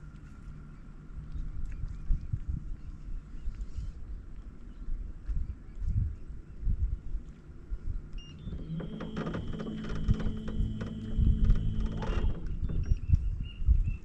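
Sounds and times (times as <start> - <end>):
electric trolling motor humming: 8.2 - 13.1
irregular low thumps: 8.3 - 14.0.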